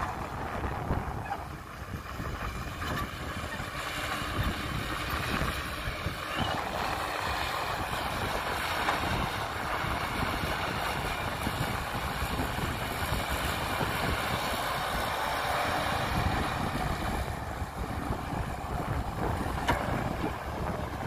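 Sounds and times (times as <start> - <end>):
heavy diesel engine running: 0.0 - 21.0.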